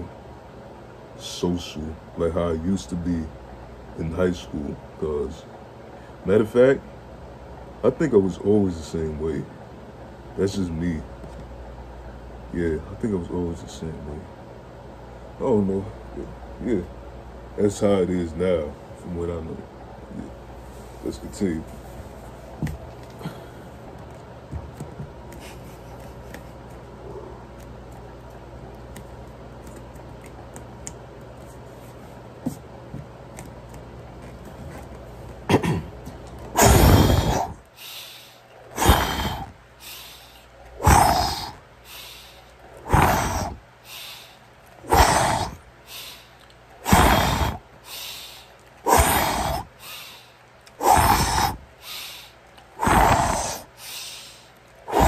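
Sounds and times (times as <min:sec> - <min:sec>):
man breathing hard: 0:23.0 - 0:23.8, 0:36.6 - 0:55.0
forceful exhale: 0:36.6 - 0:55.0.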